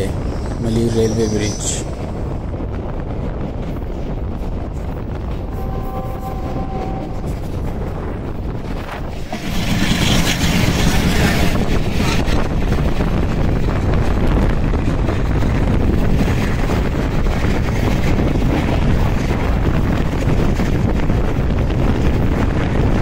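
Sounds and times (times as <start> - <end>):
train rumbling: 0.0 - 23.0
wind rushing over microphone: 0.0 - 23.0.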